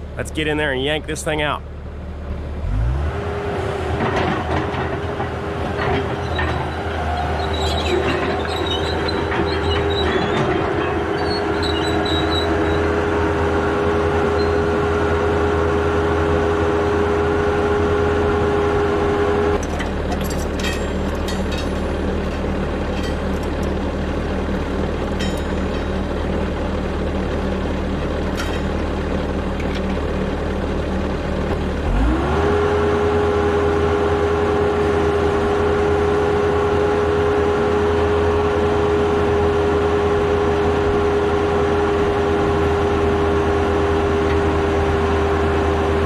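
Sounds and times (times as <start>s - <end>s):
diesel engine running: 0.0s - 46.0s
hydraulic whine: 5.8s - 13.2s
metallic clinks and clanks: 19.6s - 23.8s, 25.0s - 26.3s, 28.3s - 28.8s.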